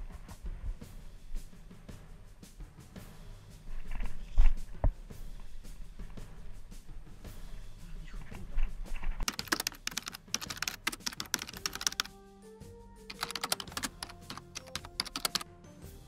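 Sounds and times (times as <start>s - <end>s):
airsoft gun rapid clicks: 9.2s - 12.0s, 13.1s - 15.4s
music with held notes: 9.3s - 16.0s.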